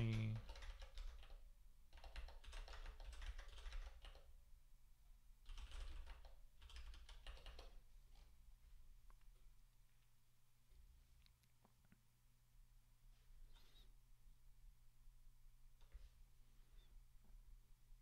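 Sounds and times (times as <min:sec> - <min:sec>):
typing on a keyboard: 0:00.0 - 0:04.3, 0:05.4 - 0:07.8.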